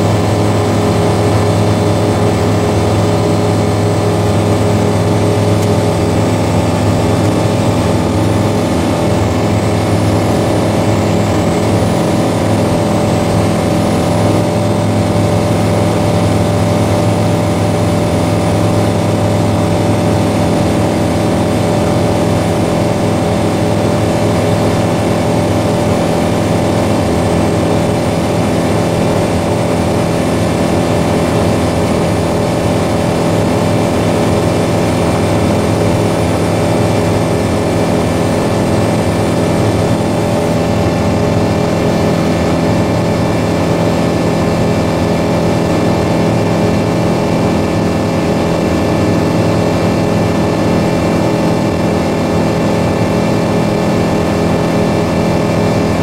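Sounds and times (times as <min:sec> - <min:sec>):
light aircraft engine and propeller: 0:00.0 - 0:56.0.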